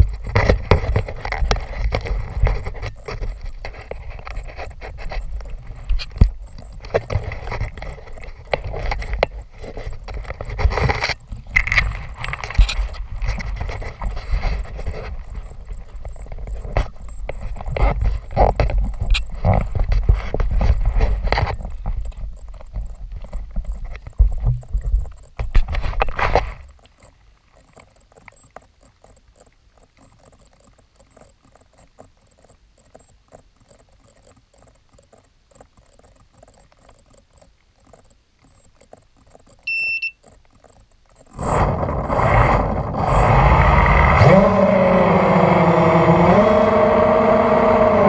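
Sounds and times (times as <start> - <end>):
short electronic beep: 39.7 - 40.2
drone motors whining: 41.4 - 48.0.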